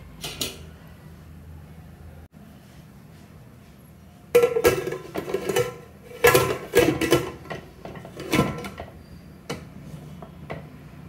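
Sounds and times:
metal lid clanking on pot: 0:04.4 - 0:09.6.

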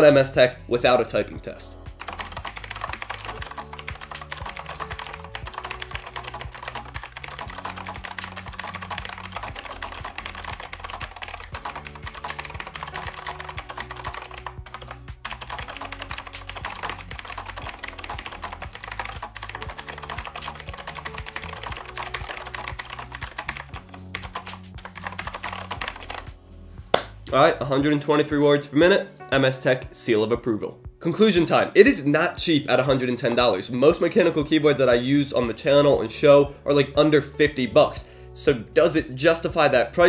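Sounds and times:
background music: 0:00.0 - 0:40.0
mechanical keyboard typing clicks: 0:02.0 - 0:26.3.

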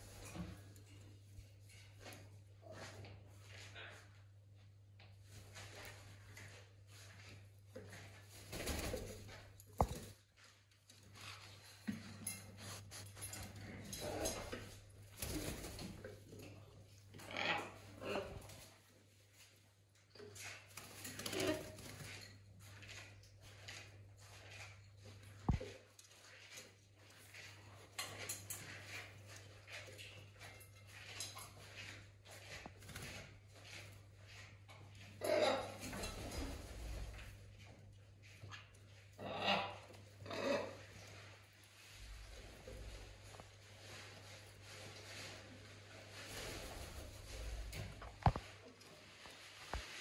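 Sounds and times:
rustling and scratching on blanket: 0:11.1 - 0:15.7, 0:40.2 - 0:50.0
animal scratching on fabric: 0:12.3 - 0:14.6.

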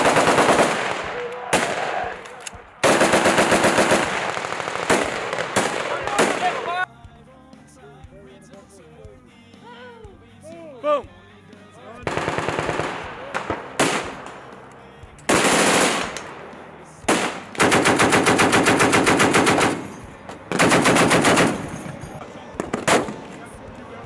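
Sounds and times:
machine gun bursts: 0:00.0 - 0:01.0, 0:02.8 - 0:06.5, 0:12.1 - 0:13.0, 0:15.3 - 0:16.2, 0:17.1 - 0:19.9, 0:20.5 - 0:22.0.

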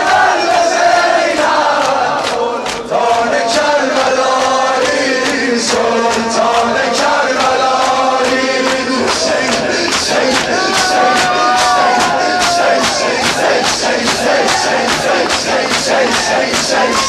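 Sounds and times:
man chanting a lament: 0:05.0 - 0:17.0
sharp chest-beating strikes: 0:09.1 - 0:17.0.

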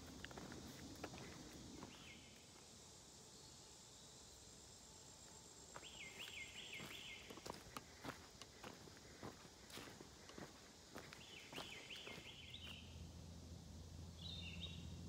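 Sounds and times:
footsteps on dirt trail: 0:00.0 - 0:02.2, 0:05.7 - 0:12.9
high insect hum: 0:00.0 - 0:15.0.

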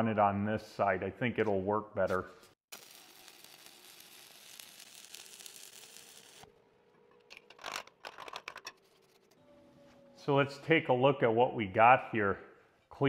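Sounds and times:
welding arc crackling: 0:02.7 - 0:06.6.

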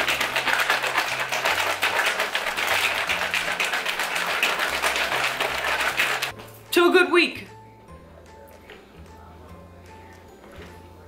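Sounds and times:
shaker bottle rattling and sloshing: 0:00.0 - 0:06.3.

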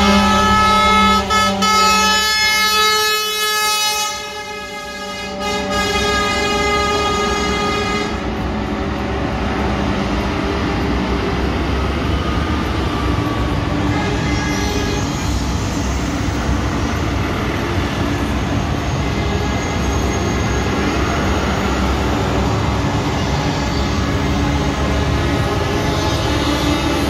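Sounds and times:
truck air horn: 0:00.0 - 0:08.4, 0:13.8 - 0:15.5
diesel truck engines: 0:00.0 - 0:27.0
traffic noise: 0:00.0 - 0:27.0.

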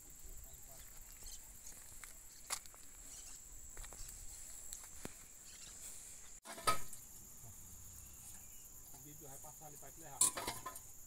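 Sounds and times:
high-pitched insect drone: 0:00.0 - 0:11.0
footsteps on concrete: 0:00.8 - 0:05.3.

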